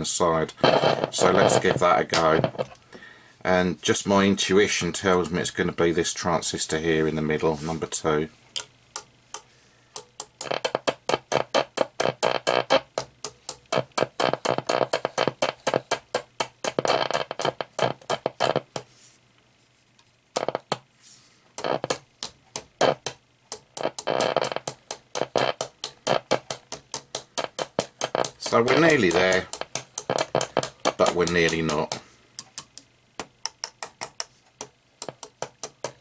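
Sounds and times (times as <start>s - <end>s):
radio crackles and bursts: 0.0s - 2.8s, 23.8s - 26.6s, 27.4s - 32.0s
small mallet tapping: 8.6s - 12.3s, 12.9s - 17.5s, 21.8s - 36.0s.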